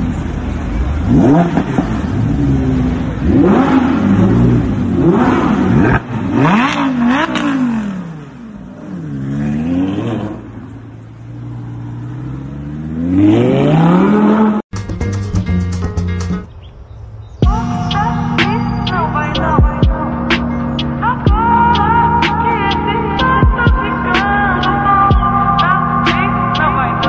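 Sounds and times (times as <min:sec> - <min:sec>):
car engine revving: 0:00.0 - 0:14.7.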